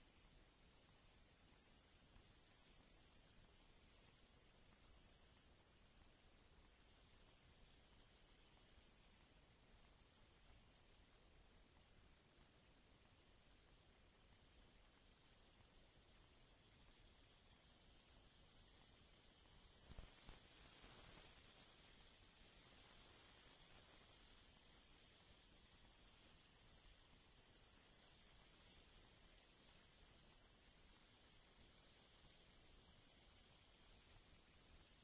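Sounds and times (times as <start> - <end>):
spray gun hissing: 19.8 - 23.9.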